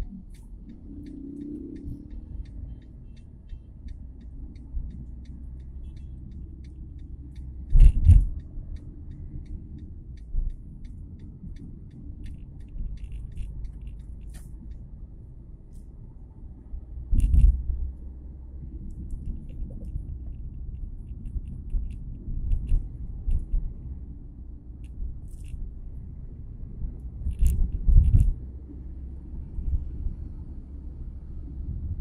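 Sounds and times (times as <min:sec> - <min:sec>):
faint regular ticking: 0:00.0 - 0:15.9
car road and engine rumble: 0:00.0 - 0:32.0.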